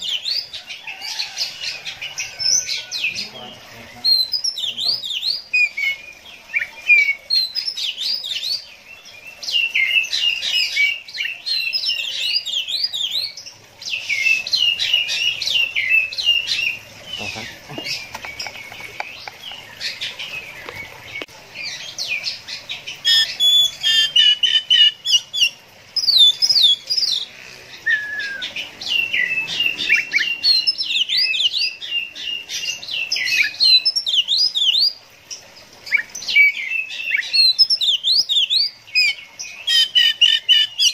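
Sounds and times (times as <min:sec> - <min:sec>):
bird singing whistles and trills: 0:27.8 - 0:32.0.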